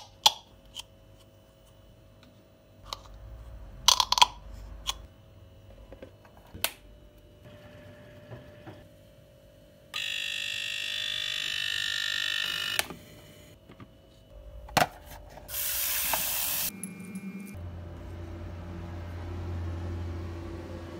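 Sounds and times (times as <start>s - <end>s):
egg cooker buzzer: 9.9s - 13.5s.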